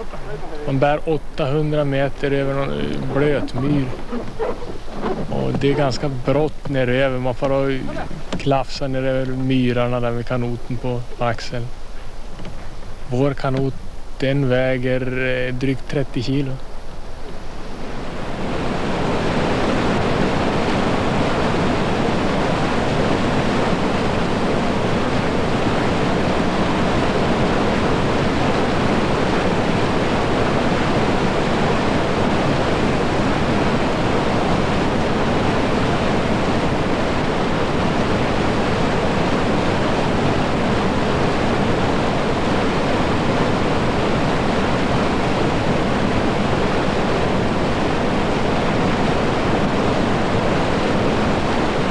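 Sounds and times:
river rapids rushing: 2.2s - 8.5s, 17.7s - 51.9s.

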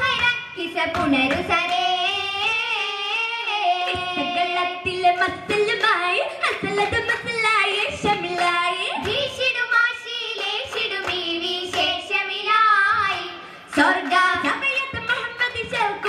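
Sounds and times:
sharp hand claps: 0.0s - 1.8s, 5.2s - 12.1s, 13.0s - 16.0s
girls singing folk song: 0.0s - 16.0s.

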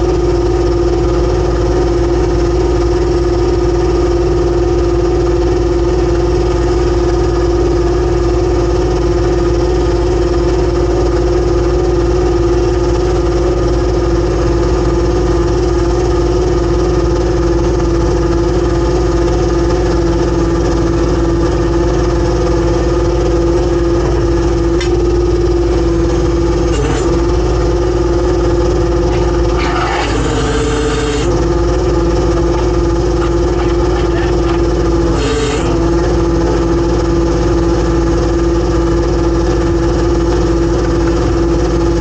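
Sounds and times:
boat engine hum: 11.1s - 42.0s.

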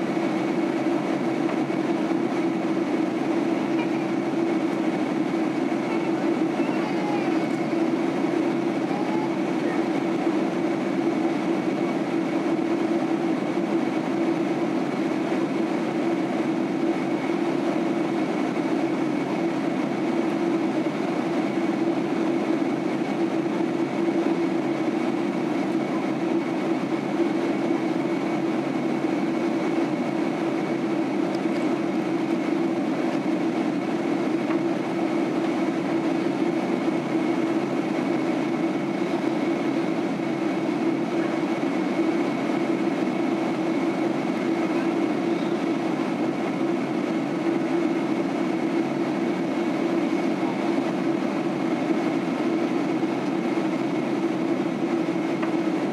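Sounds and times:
jet engine cabin hum: 0.0s - 55.9s
faint high whine: 44.4s - 46.1s.

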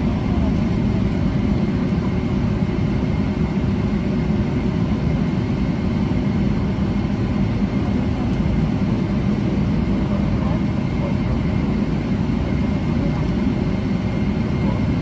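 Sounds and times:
airplane cabin engine noise: 0.0s - 15.0s.

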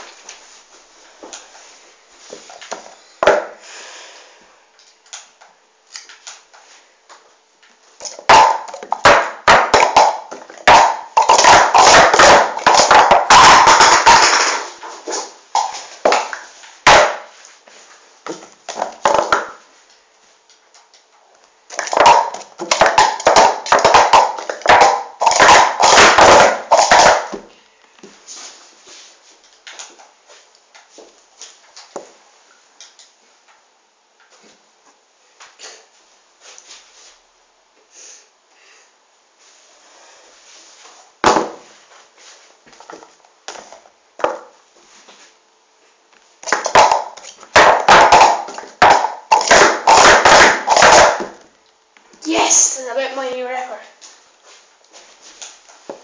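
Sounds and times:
plastic cups clattering: 8.0s - 14.8s, 21.7s - 27.4s, 46.4s - 51.4s.

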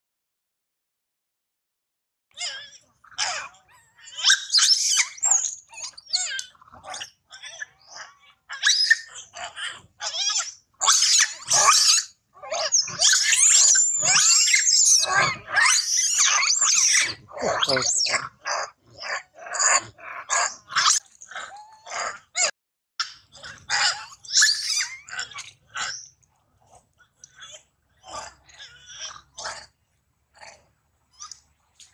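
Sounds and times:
monkey screaming: 2.4s - 26.1s, 27.4s - 29.7s.

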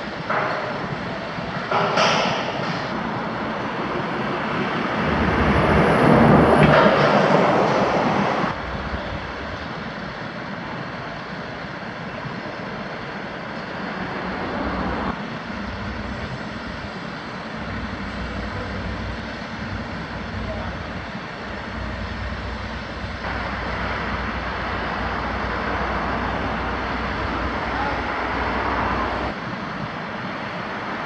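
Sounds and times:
heavy machinery engine: 0.0s - 31.0s.

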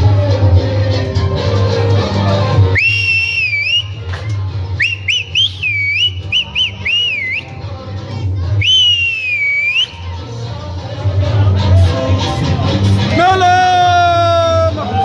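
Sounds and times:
person whistling trills: 2.7s - 4.0s, 4.8s - 7.5s, 8.6s - 10.0s.

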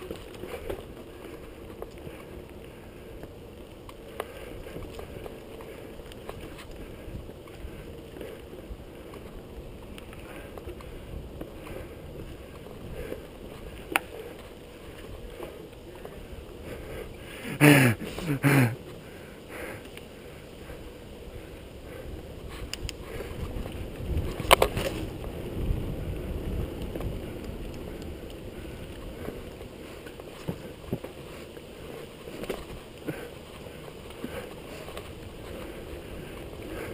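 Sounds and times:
bike tyres rumbling on dirt: 0.0s - 36.9s
wind on microphone: 21.3s - 31.1s.

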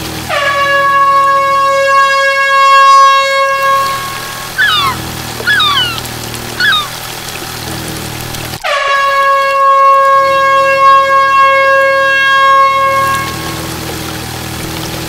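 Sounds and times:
short warbling chirps: 4.6s - 6.0s, 6.6s - 7.0s.

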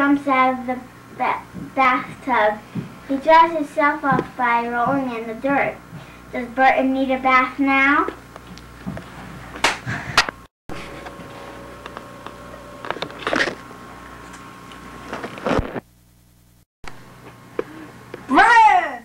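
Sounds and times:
camcorder handling noise: 11.8s - 13.6s.

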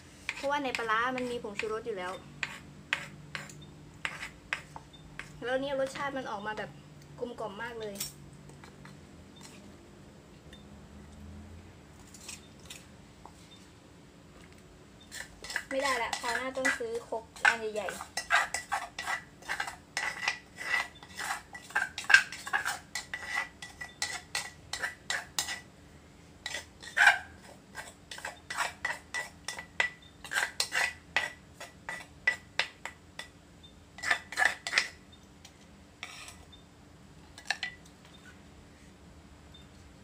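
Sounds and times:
plastic spoon scraping in mortar: 2.4s - 5.4s, 15.1s - 25.6s, 26.4s - 29.6s, 30.2s - 32.1s, 34.0s - 34.9s.

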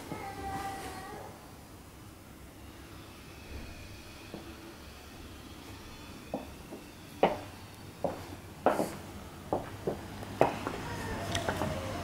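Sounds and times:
footsteps on tiled floor: 6.3s - 11.8s.

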